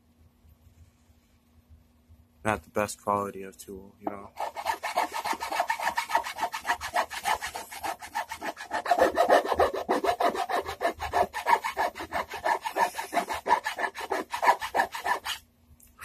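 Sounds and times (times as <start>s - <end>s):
hand file rasping on wood: 4.2s - 15.4s.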